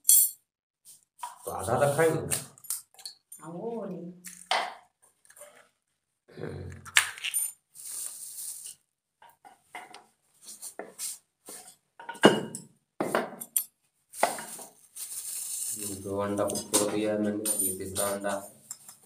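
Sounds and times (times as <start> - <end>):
plastic bag rustling: 14.1 - 16.1.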